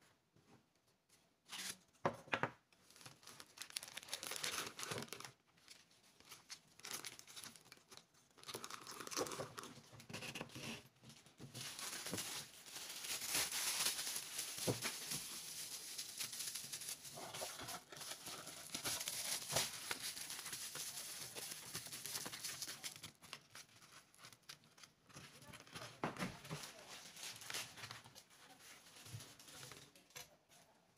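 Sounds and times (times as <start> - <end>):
bubble wrap rustling and crinkling: 2.8 - 30.8
cardboard box folding: 11.5 - 28.0.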